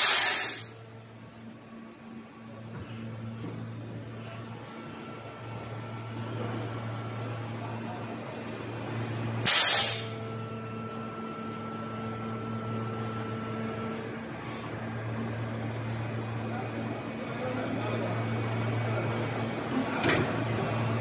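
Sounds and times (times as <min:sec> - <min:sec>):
loud hiss: 0:00.0 - 0:00.7
faint machine whine: 0:00.0 - 0:21.0
machine humming: 0:03.0 - 0:21.0.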